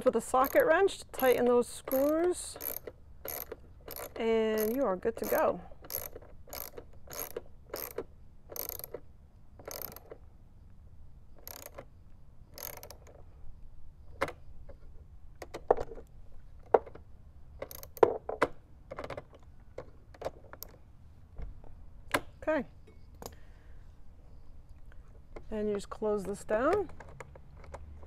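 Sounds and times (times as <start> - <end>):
ratchet wrench clicking: 0.2 - 9.0, 9.6 - 10.2, 11.4 - 11.8, 12.5 - 13.2, 17.6 - 18.0.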